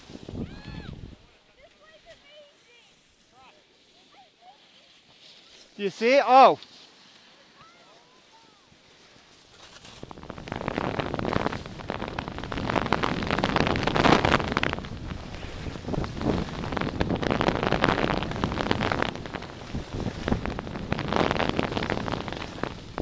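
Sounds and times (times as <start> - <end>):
wind rushing over microphone: 0.0 - 1.3, 9.8 - 23.0
skis scraping on snow: 1.3 - 23.0.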